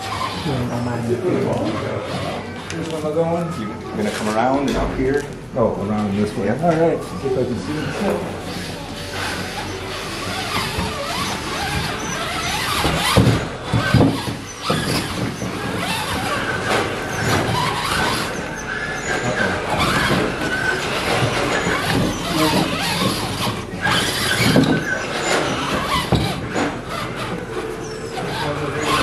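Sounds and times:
electric motor and gears whining: 0:00.0 - 0:29.0
knocks: 0:12.6 - 0:18.2.

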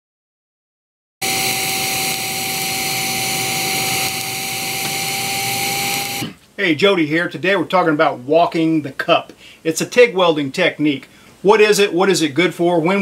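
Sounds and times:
welding arc hissing: 0:01.2 - 0:06.4.

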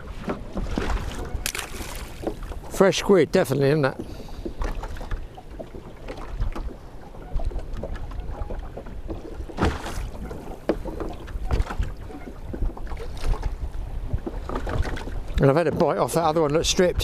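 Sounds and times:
wind on microphone: 0:00.0 - 0:02.8, 0:04.0 - 0:15.8, 0:16.4 - 0:17.0
water lapping against boat hull: 0:00.0 - 0:17.0
water rush: 0:00.8 - 0:05.2.

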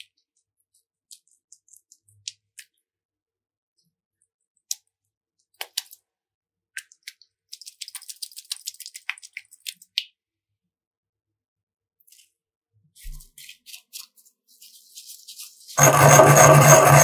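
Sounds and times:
small crackling ticks: 0:00.0 - 0:02.8, 0:06.8 - 0:10.1.

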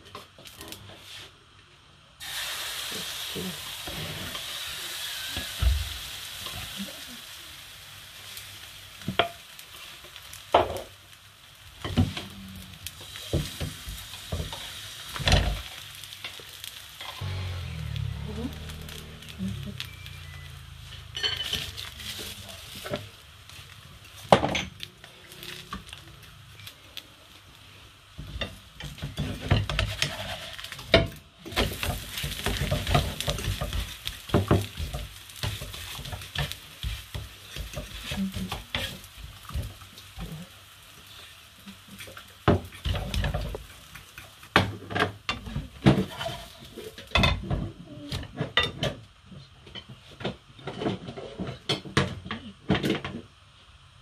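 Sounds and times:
pancake sizzling in a frying pan: 0:02.2 - 0:54.0
spatula scraping and knocking pan: 0:28.2 - 0:39.8, 0:42.0 - 0:47.6.

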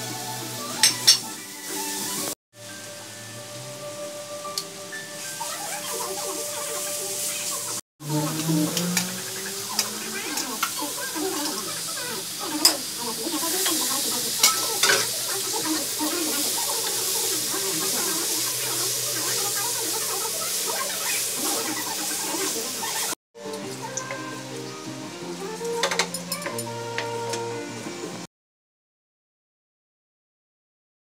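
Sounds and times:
meat sizzling in a wok: 0:00.0 - 0:26.6
spatula scraping a wok: 0:05.2 - 0:23.2.

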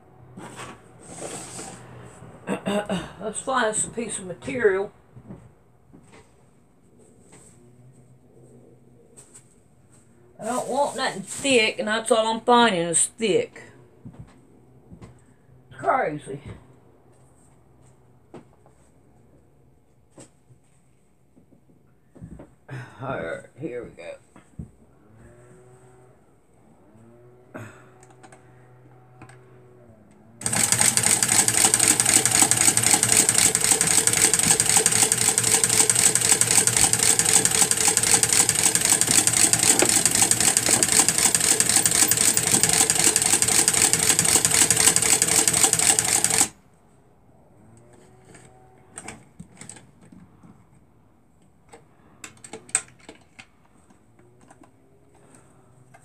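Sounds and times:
sewing machine stitching: 0:30.4 - 0:46.6.

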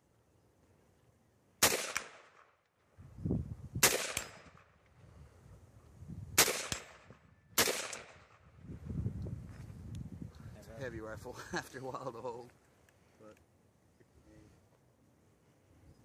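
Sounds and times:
faint echo of gunshot: 0:01.6 - 0:02.6, 0:03.8 - 0:04.8, 0:06.4 - 0:08.5
rifle shots: 0:01.6 - 0:02.6, 0:03.8 - 0:04.8, 0:06.4 - 0:08.5.

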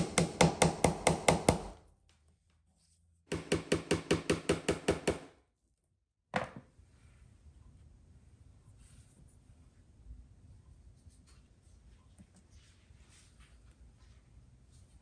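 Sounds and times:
small hammer tapping nails: 0:03.3 - 0:05.3.

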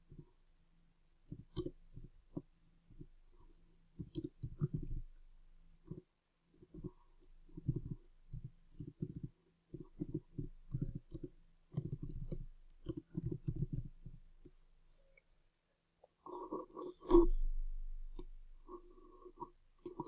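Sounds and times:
computer keyboard typing: 0:07.6 - 0:14.2.

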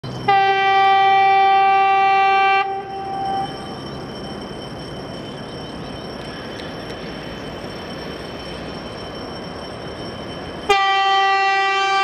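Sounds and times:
approaching train noise: 0:00.0 - 0:12.0
locomotive horn blast: 0:00.3 - 0:03.4, 0:10.7 - 0:12.0.

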